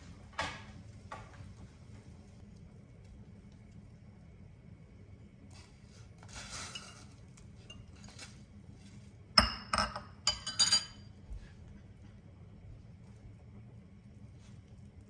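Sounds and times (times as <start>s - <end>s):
metal spoon scraping a bowl: 6.2s - 8.4s
spoon clinking against metal pot: 9.4s - 11.1s.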